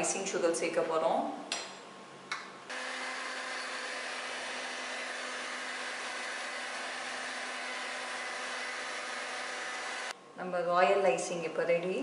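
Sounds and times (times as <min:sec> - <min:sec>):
electric hand mixer running: 0:02.7 - 0:10.1.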